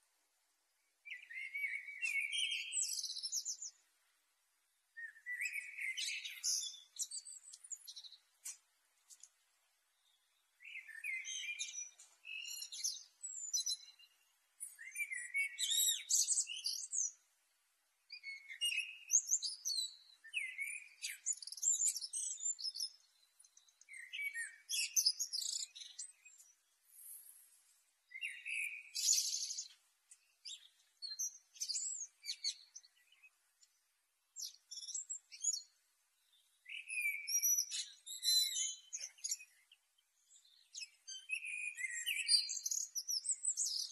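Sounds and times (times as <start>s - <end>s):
blackbird singing: 1.0s - 3.8s, 5.0s - 8.3s, 9.9s - 17.2s, 18.1s - 27.5s, 28.1s - 33.8s, 34.4s - 43.9s.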